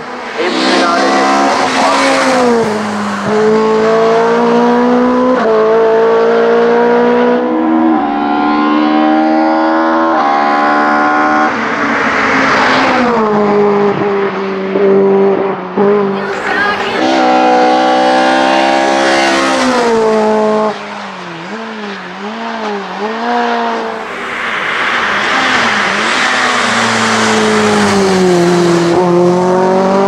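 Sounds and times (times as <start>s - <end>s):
rush of noise: 0.0s - 4.7s, 20.7s - 29.9s
race car engine at full throttle: 0.0s - 30.0s.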